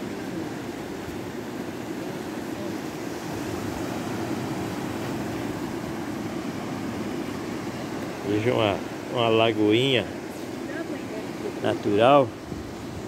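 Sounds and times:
wind on microphone: 12.3 - 13.0.

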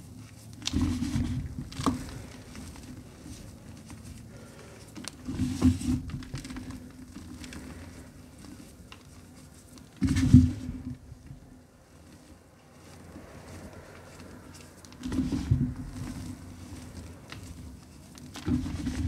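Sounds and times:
chalk crumbling and sifting: 0.0 - 19.0.

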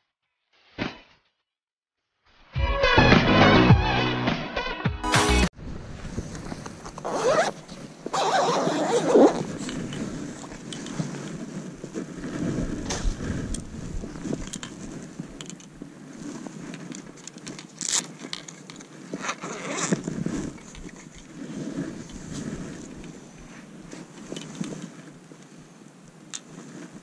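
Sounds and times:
fabric rustling and scraping: 6.0 - 27.0
rod handling noise: 13.0 - 23.2, 23.9 - 25.5.

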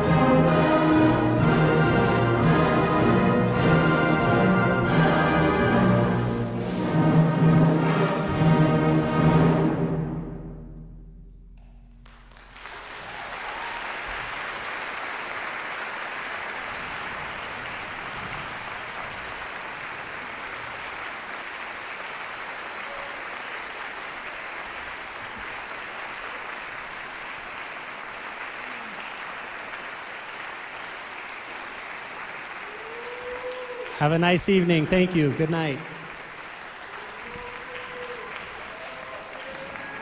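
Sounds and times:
audience applause: 12.0 - 40.0.

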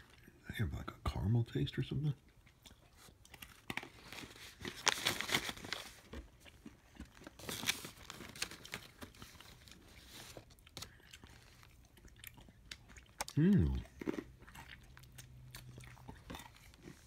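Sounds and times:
plastic pouch crinkling and tearing: 3.5 - 6.0, 7.2 - 11.6.

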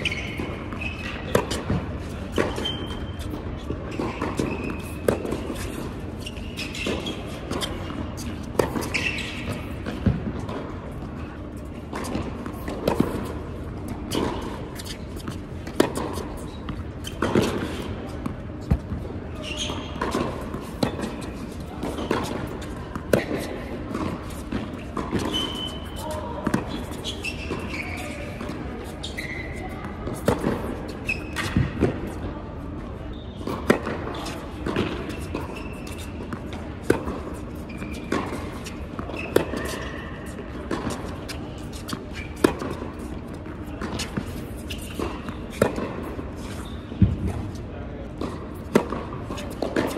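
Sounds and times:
racquet striking tennis ball: 0.0 - 10.8, 11.9 - 19.0, 19.7 - 27.8, 33.4 - 46.2, 47.0 - 49.9
sneaker squeaks: 0.0 - 49.9
ball bounces: 6.8 - 10.7, 31.3 - 32.1.

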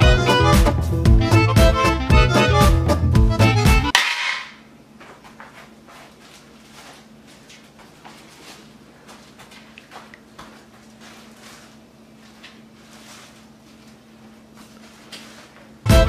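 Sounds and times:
soft rustles and clicks: 5.0 - 15.8.

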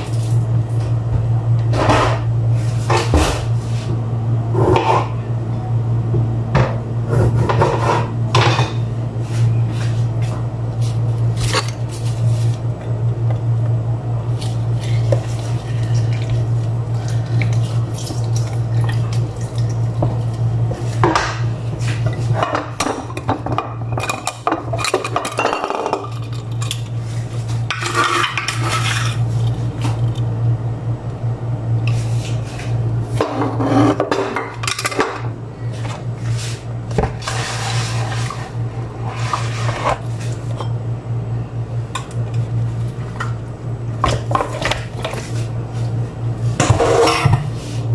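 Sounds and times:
steady low hum: 0.0 - 47.9
scraping or rustling: 37.2 - 40.3.

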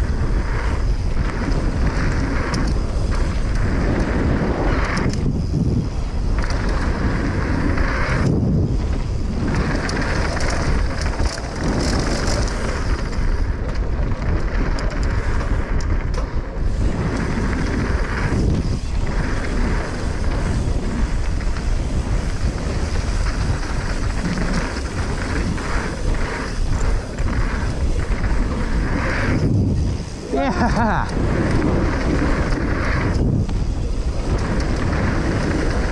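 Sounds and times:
bike knocks and rattles: 0.0 - 35.9
tyres rolling on dirt and gravel: 0.0 - 35.9
wind rushing over microphone: 0.0 - 35.9.

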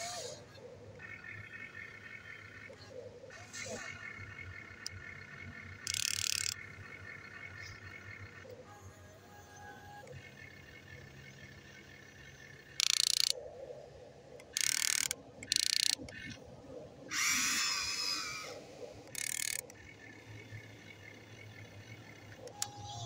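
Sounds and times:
electric gearmotors whirring: 0.0 - 23.0.

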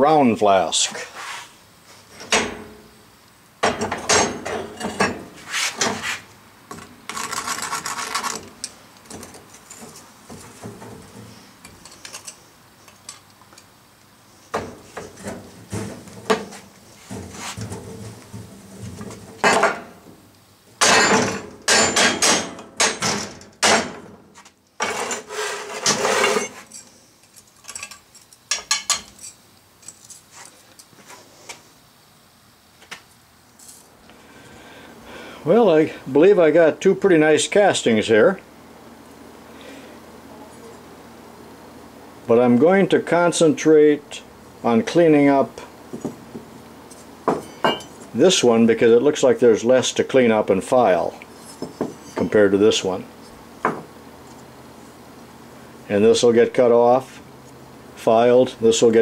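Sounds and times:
gritty sand scraping: 5.4 - 6.3
metal knocks and clinks: 47.3 - 48.0.

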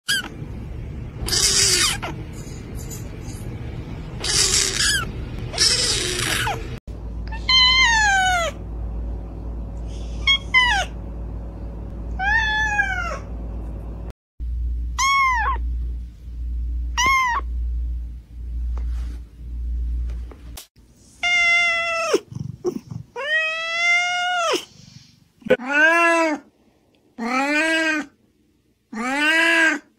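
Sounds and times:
kitten crying: 1.2 - 2.2, 4.2 - 6.7, 7.3 - 8.6, 10.2 - 11.0, 12.2 - 13.3, 15.0 - 15.6, 17.0 - 17.5, 21.2 - 22.3, 23.2 - 24.7, 28.9 - 29.9
kitten mewing: 4.2 - 6.7, 7.3 - 8.6
cat meowing: 7.3 - 8.6, 12.2 - 13.2, 15.0 - 15.6, 17.0 - 17.5.

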